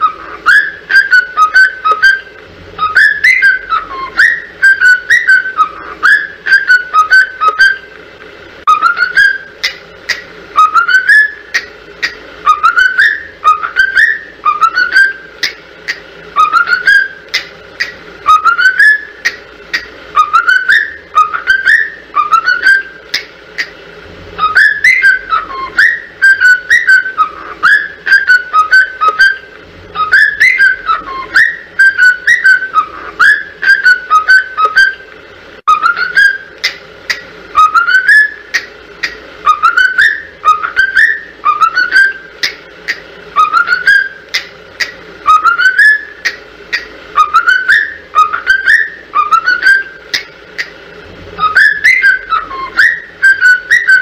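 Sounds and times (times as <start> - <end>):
whistled tune: 0.0 - 7.9, 8.7 - 9.5, 10.6 - 11.7, 12.4 - 15.5, 16.4 - 17.5, 18.2 - 19.4, 20.2 - 23.0, 24.4 - 35.0, 35.7 - 36.6, 37.6 - 38.5, 39.4 - 42.6, 43.4 - 44.2, 45.3 - 46.4, 47.2 - 50.2, 51.4 - 54.0.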